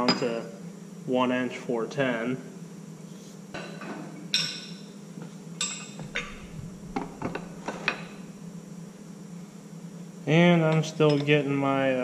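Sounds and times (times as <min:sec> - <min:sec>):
steady low hum: 0:00.0 - 0:12.0
metallic clinks and knocks: 0:05.6 - 0:08.2.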